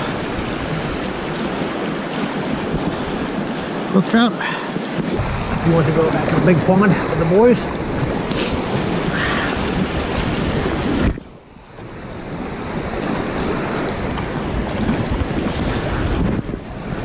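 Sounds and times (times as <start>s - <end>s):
wind buffeting microphone: 0.0s - 3.9s, 4.7s - 17.0s
water rushing over spillway: 0.0s - 11.2s.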